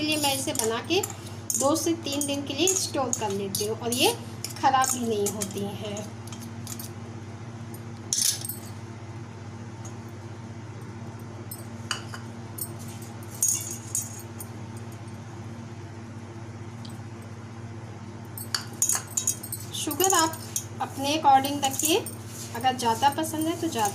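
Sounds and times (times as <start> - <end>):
bangles clinking against steel bowl: 0.0 - 6.9, 12.6 - 14.4, 18.4 - 23.9
steady low hum: 0.0 - 23.9.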